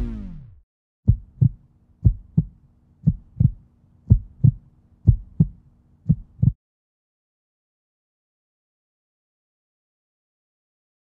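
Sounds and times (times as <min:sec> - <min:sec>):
low boom: 0:00.0 - 0:01.3
heartbeat thumps: 0:01.1 - 0:06.6.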